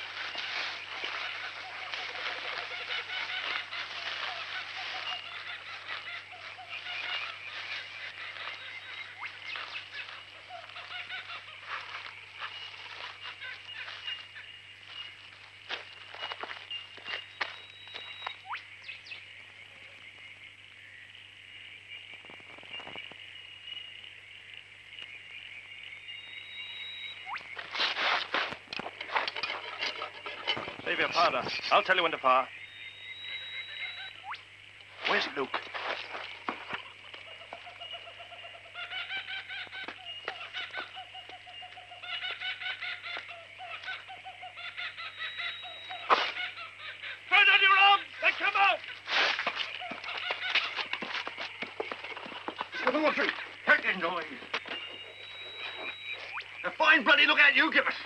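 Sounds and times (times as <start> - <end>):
whistled bird calls: 15.9 - 19.3, 26.0 - 27.7, 30.7 - 34.5, 36.3 - 49.0, 49.7 - 58.0.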